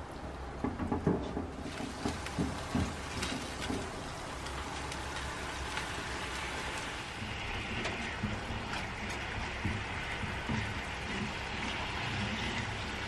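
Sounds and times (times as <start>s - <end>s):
spatula knocking while stirring: 0.6s - 4.0s, 7.2s - 13.0s
sauce bubbling and sizzling in pan: 0.7s - 13.0s.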